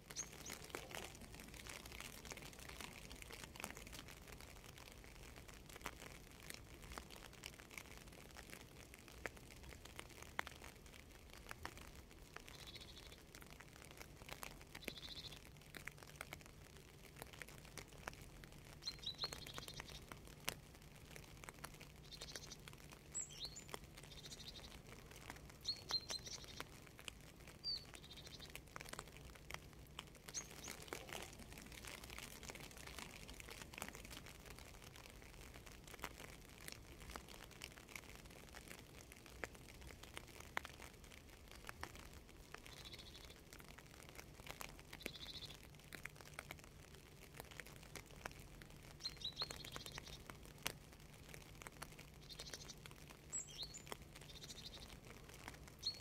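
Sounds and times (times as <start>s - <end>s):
raindrop ticks: 0.0s - 56.0s
birds chirping: 0.1s - 2.1s, 12.5s - 13.2s, 14.8s - 15.4s, 18.8s - 20.1s, 22.0s - 24.8s, 25.6s - 26.7s, 27.6s - 28.6s, 30.3s - 32.3s, 52.2s - 55.0s.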